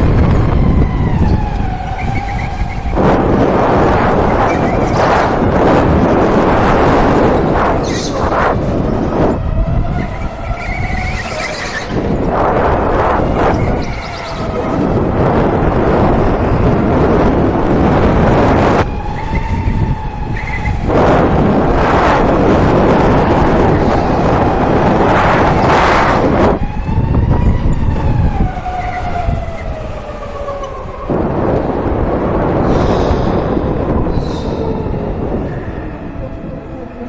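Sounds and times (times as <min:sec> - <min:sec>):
loud rushing noise: 0:31.1 - 0:35.8.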